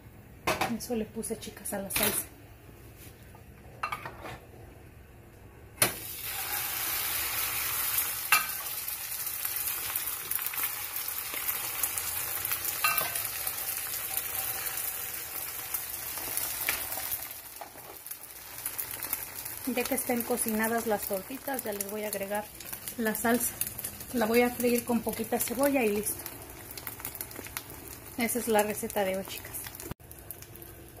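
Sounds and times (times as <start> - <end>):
egg sizzling in hot oil: 5.9 - 31.0.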